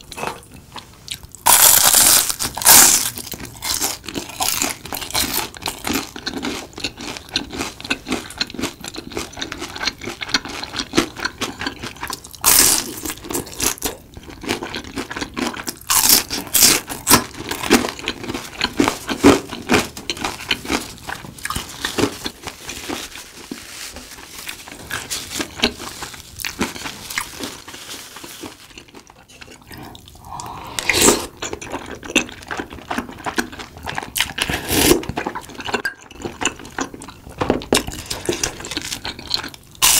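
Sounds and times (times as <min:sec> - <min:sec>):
chewing and crunching snacks: 0:00.1 - 0:39.9
slurp from a spoon: 0:29.7 - 0:31.5, 0:34.4 - 0:35.1.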